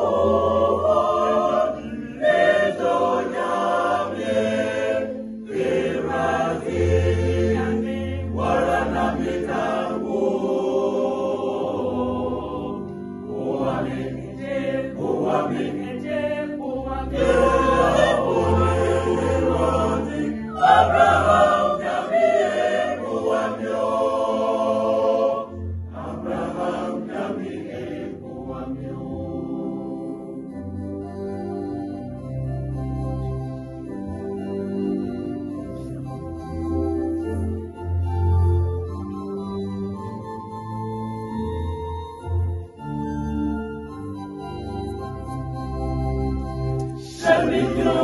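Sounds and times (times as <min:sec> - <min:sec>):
mixed choir singing in harmony: 0:00.0 - 0:31.3, 0:46.8 - 0:48.0.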